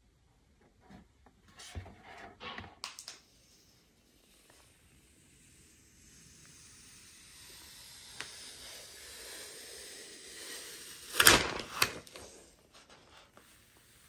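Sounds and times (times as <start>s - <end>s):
plastic film rustling and crackling: 11.1s - 13.4s.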